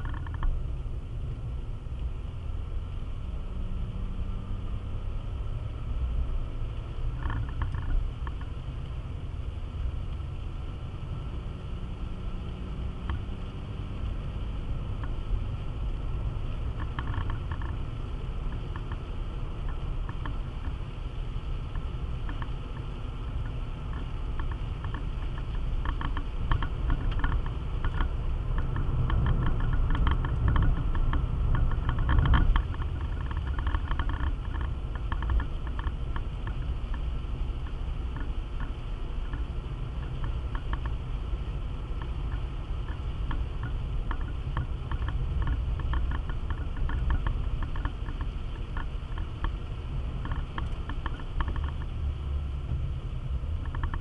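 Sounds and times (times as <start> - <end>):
engine and tyres on wet road: 0.0 - 54.0
rain ticking on windscreen: 0.0 - 54.0.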